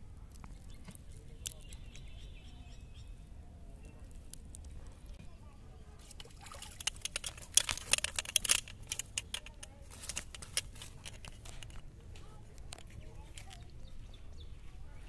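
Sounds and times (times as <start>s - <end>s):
fish splashing and slapping: 6.0s - 8.6s
fish tapping on mud: 6.0s - 11.8s.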